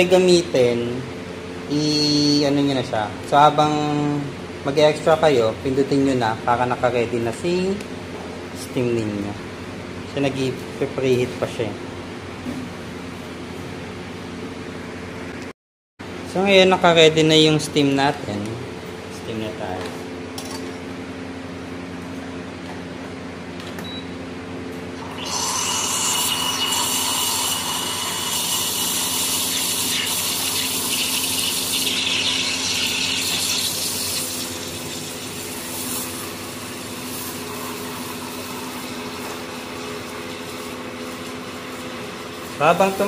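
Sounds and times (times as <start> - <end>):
espresso machine humming: 24.9 - 43.0
steam wand hissing into milk: 25.1 - 36.2.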